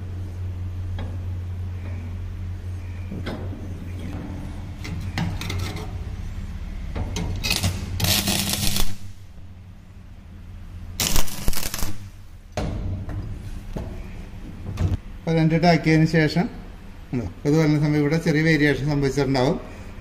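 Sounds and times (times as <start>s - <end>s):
steady low hum: 0.0s - 20.0s
welding arc crackle and hiss: 7.4s - 9.3s, 11.0s - 12.3s.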